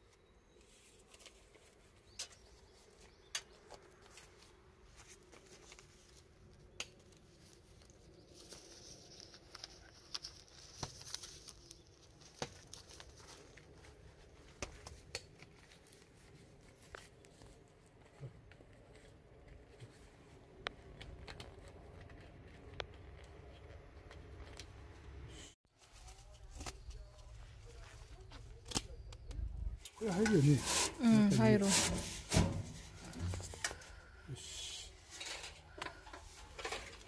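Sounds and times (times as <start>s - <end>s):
plastic film rustling and crinkling: 4.0s - 17.6s.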